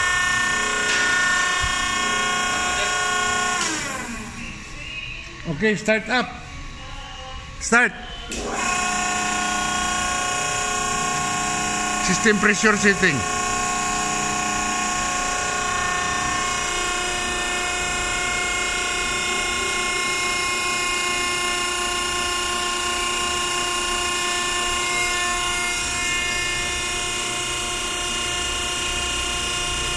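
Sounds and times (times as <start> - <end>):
hydraulic pump whine: 0.0 - 29.9.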